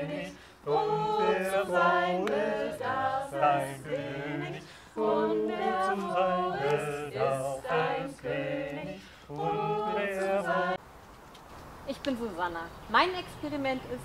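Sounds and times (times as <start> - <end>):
group singing a cappella: 0.0 - 10.8.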